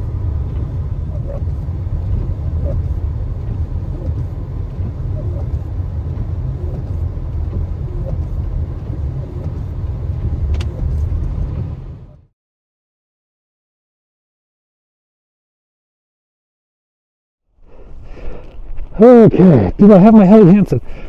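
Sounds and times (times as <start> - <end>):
moving car rumble: 0.0 - 12.3, 17.5 - 21.0.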